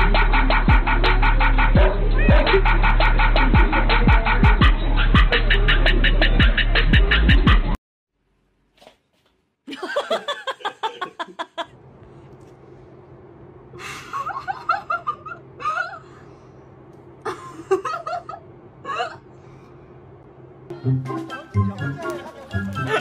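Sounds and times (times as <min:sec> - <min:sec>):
person laughing: 0:09.7 - 0:11.7, 0:13.8 - 0:16.2, 0:17.2 - 0:19.2, 0:22.0 - 0:23.0.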